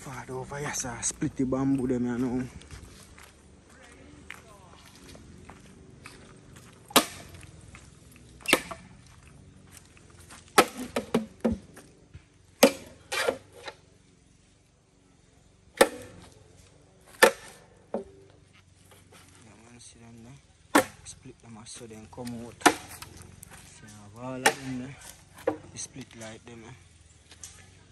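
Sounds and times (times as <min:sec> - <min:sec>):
machete splitting bamboo: 0:06.9 - 0:07.4, 0:08.4 - 0:09.0, 0:10.5 - 0:11.6, 0:12.6 - 0:13.8, 0:15.7 - 0:16.4, 0:17.1 - 0:18.2, 0:20.7 - 0:21.1, 0:22.2 - 0:23.2, 0:24.3 - 0:25.8.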